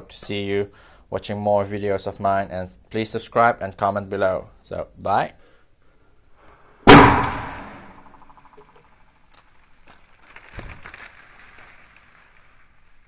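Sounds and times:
party popper bang echo: 6.9 - 8.4.

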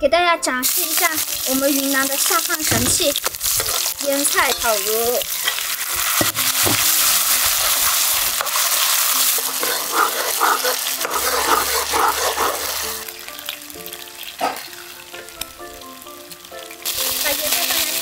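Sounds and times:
meat sizzling in hot oil: 0.6 - 18.0
metal ladle stirring in pan: 2.4 - 15.0.

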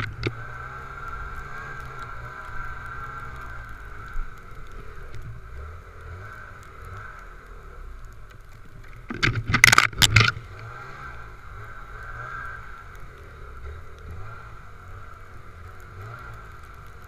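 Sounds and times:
branches knocking and scraping: 0.0 - 7.2, 8.1 - 11.2
snowmobile engine droning: 0.0 - 17.0.

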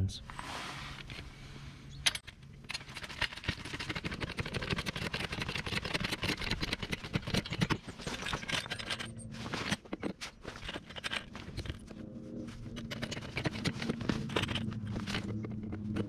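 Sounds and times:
car jack clicking and scraping: 12.6 - 16.0.

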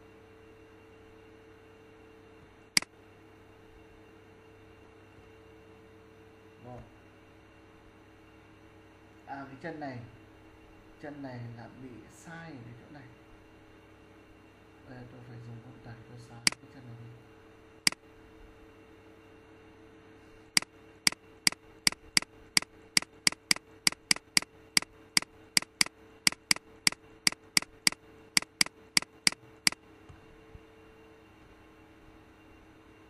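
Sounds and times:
faint steady hum: 0.0 - 33.0
mouse button clicking: 21.9 - 22.3, 23.0 - 24.5, 25.6 - 26.6, 27.3 - 29.4.

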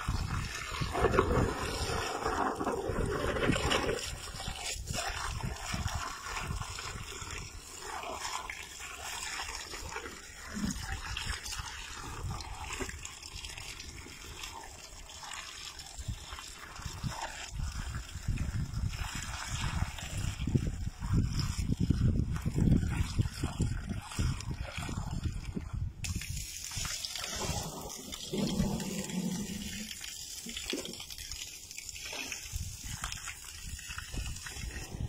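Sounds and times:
hose water splashing: 0.0 - 35.0.

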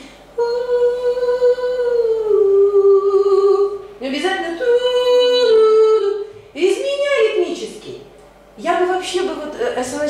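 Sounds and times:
woman singing slowly: 0.4 - 6.3.

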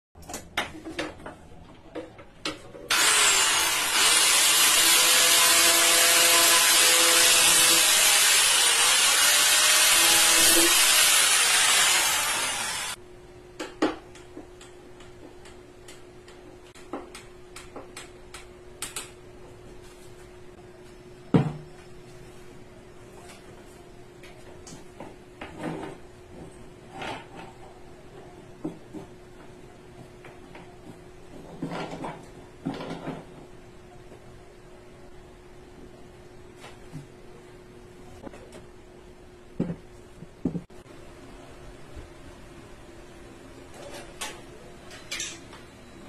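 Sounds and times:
power tool working wood: 2.9 - 13.0.

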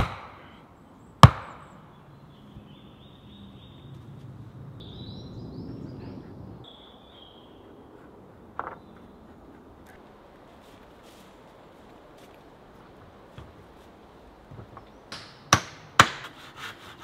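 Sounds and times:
tool striking wood: 0.0 - 0.4, 1.2 - 1.6, 15.1 - 16.4
faint high chirping: 4.8 - 7.8.

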